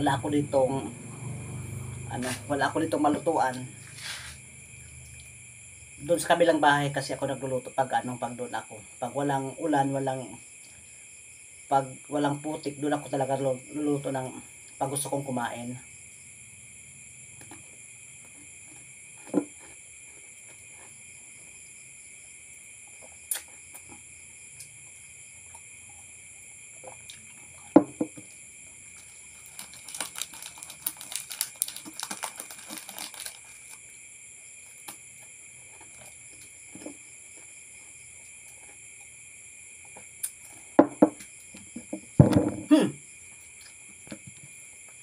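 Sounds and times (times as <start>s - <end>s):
knocks on a table: 27.7s - 28.2s, 40.8s - 41.2s, 41.8s - 42.7s
crinkling crackly noise: 29.0s - 33.9s.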